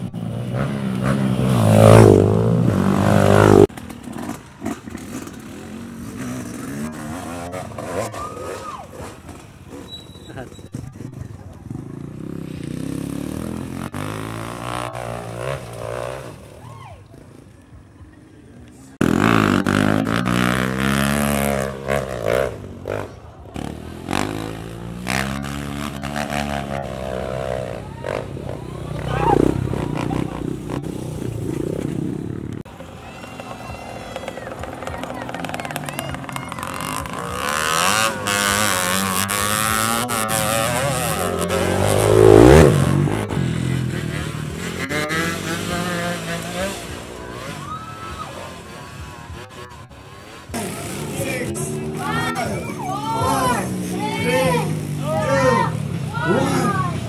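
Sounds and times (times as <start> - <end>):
dirt bike revving unevenly on climb: 0.0 - 8.1, 9.1 - 16.5, 19.0 - 32.7, 34.6 - 47.6
dirt bike engine revving past: 0.0 - 16.7, 19.0 - 32.6, 33.2 - 57.0.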